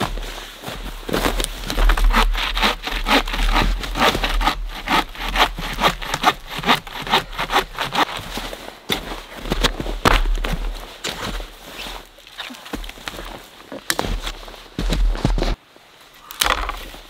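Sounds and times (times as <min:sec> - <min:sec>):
hand saw cutting log: 0:01.6 - 0:08.2.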